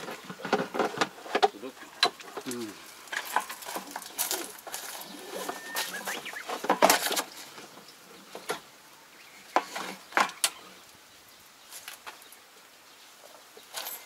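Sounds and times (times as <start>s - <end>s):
knocks and clatter on tractor body: 0.0s - 5.6s, 6.4s - 8.7s.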